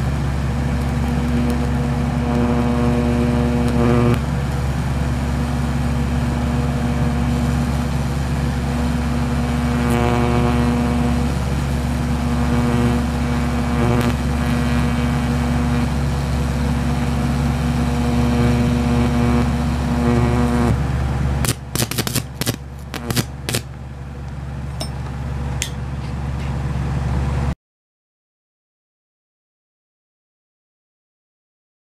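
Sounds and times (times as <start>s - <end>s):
electric arc buzzing: 0.0s - 23.8s
sharp snaps: 21.4s - 23.7s.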